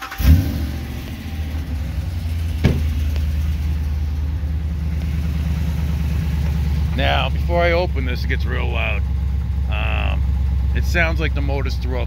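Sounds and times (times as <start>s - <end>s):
truck engine idling: 0.0s - 12.0s
sharp engine knock: 2.5s - 3.4s.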